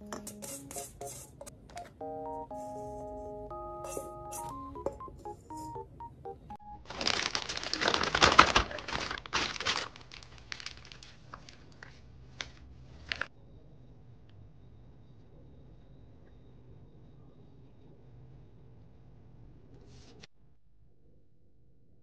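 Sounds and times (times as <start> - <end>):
plastic piping bag crinkling: 6.8 - 13.3.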